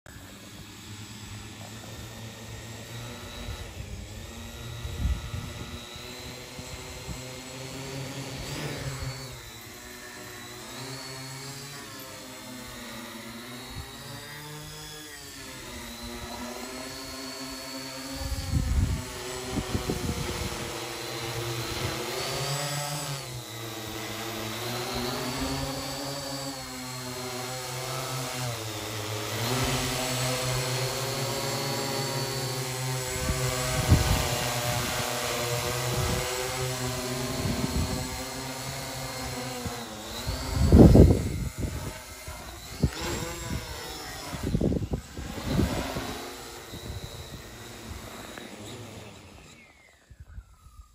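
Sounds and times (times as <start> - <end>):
drone propellers buzzing: 0.1 - 50.9
wind rumble on microphone: 3.4 - 6.0, 18.1 - 20.8, 33.1 - 36.6, 37.3 - 38.3, 39.7 - 48.1.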